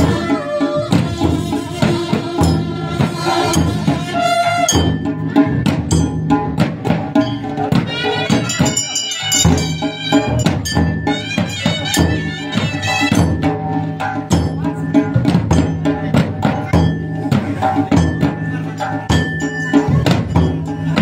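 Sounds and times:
reedy wind instrument melody: 0:00.0 - 0:05.3, 0:07.7 - 0:13.4
drums beating fast rhythm: 0:00.0 - 0:21.0.

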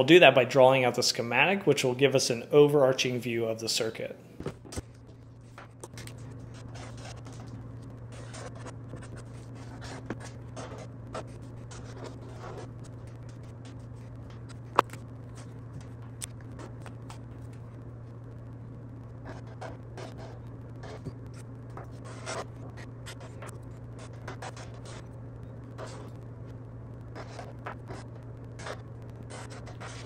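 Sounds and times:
steady low hum: 0:00.0 - 0:30.0
marker scratching on paper: 0:06.4 - 0:07.5, 0:08.1 - 0:14.6, 0:19.2 - 0:21.1, 0:21.8 - 0:25.0, 0:25.8 - 0:26.1, 0:27.2 - 0:28.0, 0:28.6 - 0:30.0.

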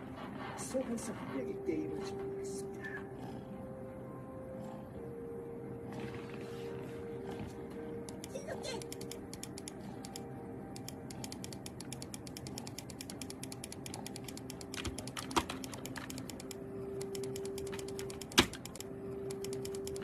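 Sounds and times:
keyboard keys clacking: 0:01.8 - 0:20.0.

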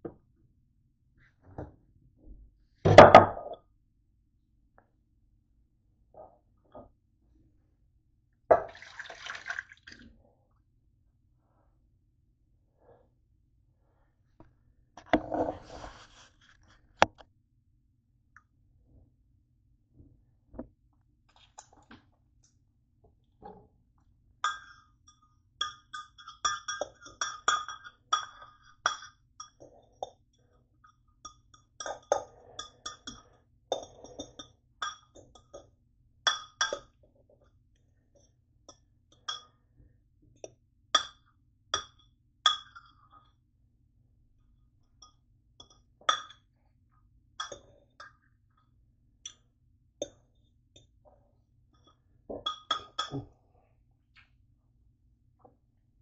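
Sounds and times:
utensils clinking on cookware: 0:24.5 - 0:30.1.

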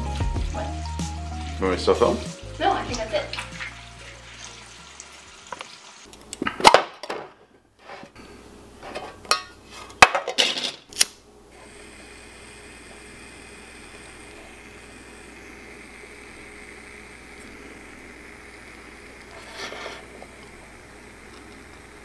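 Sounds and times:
metal tin clinking: 0:08.9 - 0:09.6.

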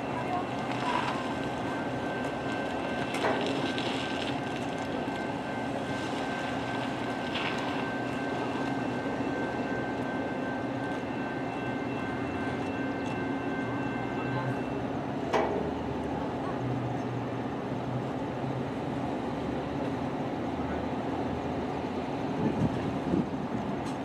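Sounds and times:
thin high whine: 0:00.0 - 0:14.9
train mechanical drone: 0:00.0 - 0:24.0.

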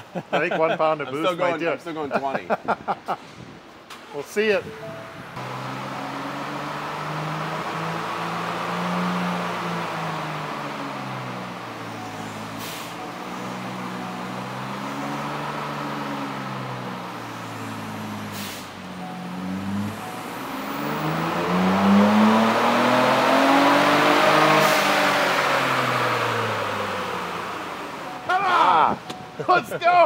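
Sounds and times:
engine revving on a dyno: 0:05.4 - 0:28.1.

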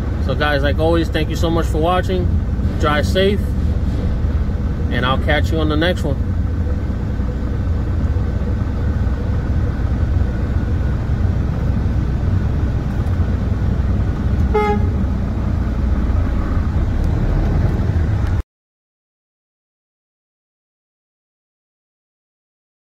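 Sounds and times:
diesel engines rumbling: 0:00.0 - 0:18.4
short horn toot: 0:14.5 - 0:15.0.

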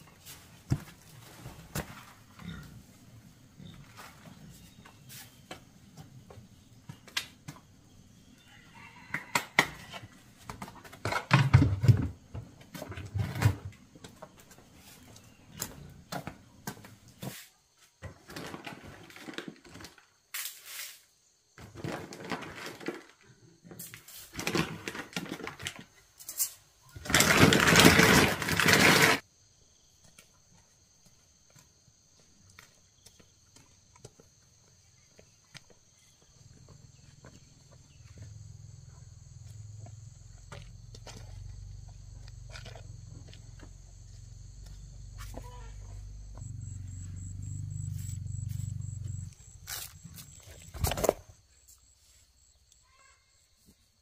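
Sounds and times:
high hum of insects: 0:28.6 - 0:54.0.

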